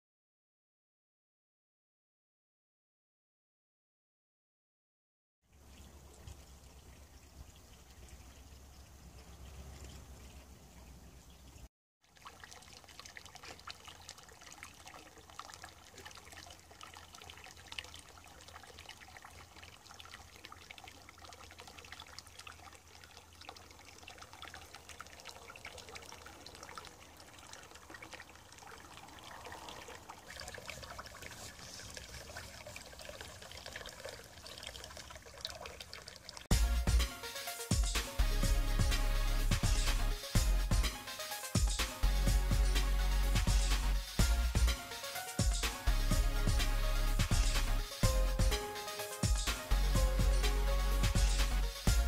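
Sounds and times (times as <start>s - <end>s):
water pouring over a weir: 5.5s - 36.6s.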